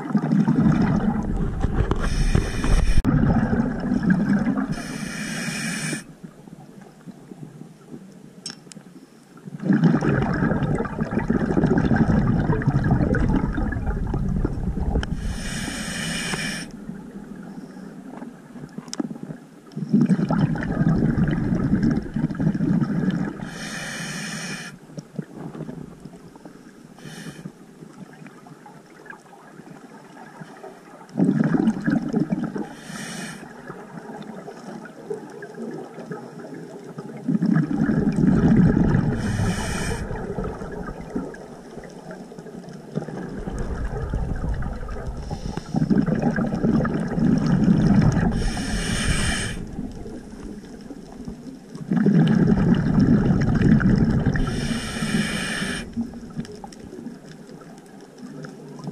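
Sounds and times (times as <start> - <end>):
gurgling exhaled bubbles: 0.0 - 6.1, 9.5 - 18.2, 19.8 - 23.7, 31.1 - 58.9
hissing regulator inhales: 2.0 - 3.1, 4.7 - 6.1, 15.2 - 16.8, 23.4 - 24.8, 27.0 - 27.5, 32.7 - 33.5, 39.1 - 40.2, 45.2 - 46.0, 48.3 - 49.7, 54.4 - 56.0.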